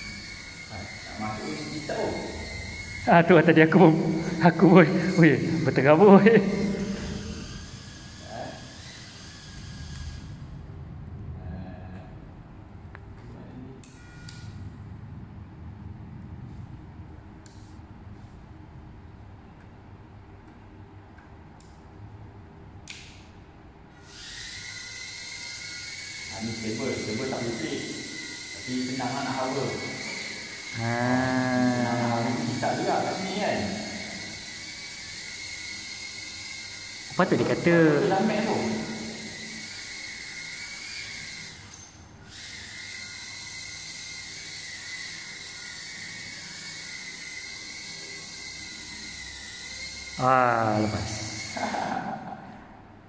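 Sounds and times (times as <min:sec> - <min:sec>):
drone propellers whining: 0:00.0 - 0:11.4, 0:24.0 - 0:53.0
low room hum: 0:00.0 - 0:53.0.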